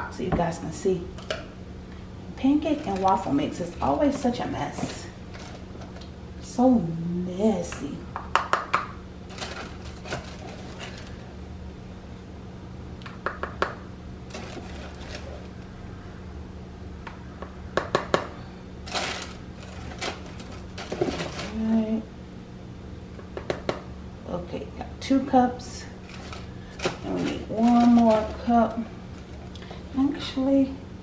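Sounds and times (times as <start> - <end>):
steady low hum: 0.0 - 31.0
paper liner rustling: 9.3 - 11.3, 14.3 - 15.5, 18.9 - 21.7, 26.0 - 29.5.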